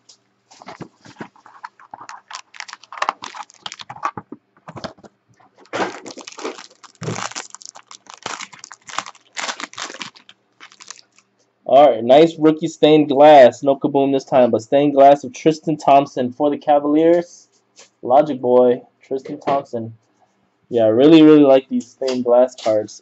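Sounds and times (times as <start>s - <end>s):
foil wrapper crinkling and tearing: 0.6s - 4.9s, 5.6s - 11.3s.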